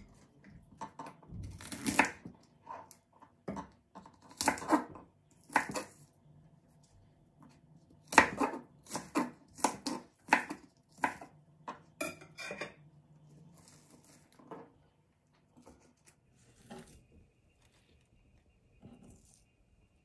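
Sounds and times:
knife chopping on wooden board: 0:00.8 - 0:02.4, 0:03.4 - 0:05.9, 0:08.0 - 0:11.3.

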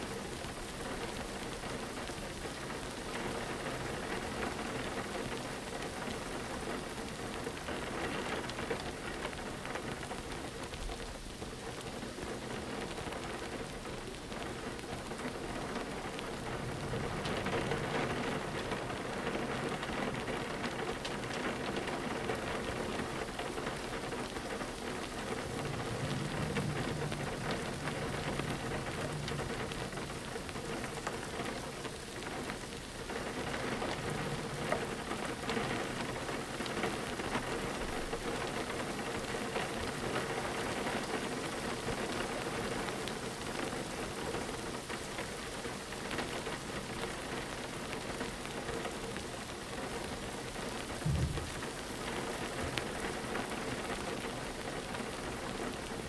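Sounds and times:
rain on a window: 0:00.0 - 0:56.0
short low thump: 0:51.0 - 0:51.8.

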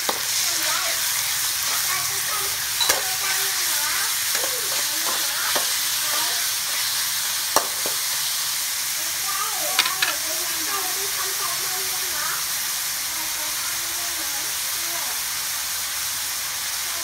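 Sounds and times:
meat sizzling in a wok: 0:00.0 - 0:17.0
spatula clicking on pan: 0:04.3 - 0:06.3, 0:07.5 - 0:08.0, 0:09.7 - 0:10.2.

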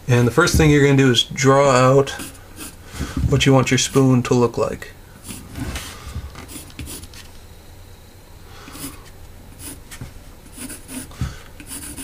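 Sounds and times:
pencil scratching on wood: 0:02.1 - 0:02.8, 0:06.4 - 0:07.1, 0:08.7 - 0:09.0, 0:09.6 - 0:09.8, 0:10.5 - 0:12.0.

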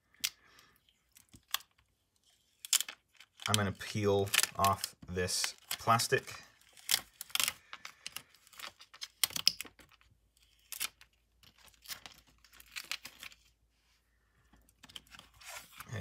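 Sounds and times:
plastic film peeling crackles: 0:01.0 - 0:13.5.

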